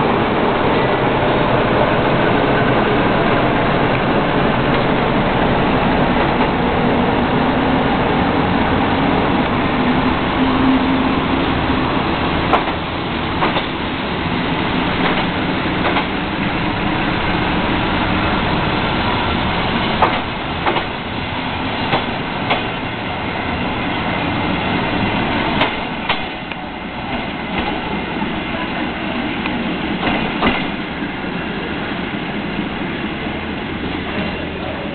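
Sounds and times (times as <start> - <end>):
train rolling noise: 0.0 - 34.9
wheels clicking over rail joints: 12.5 - 13.8, 15.0 - 16.2, 20.0 - 21.0, 25.6 - 27.9.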